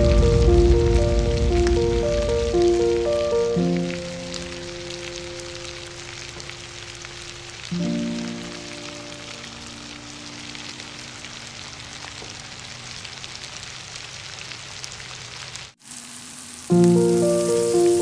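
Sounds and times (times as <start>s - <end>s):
food sizzling in a wok: 3.7s - 18.0s.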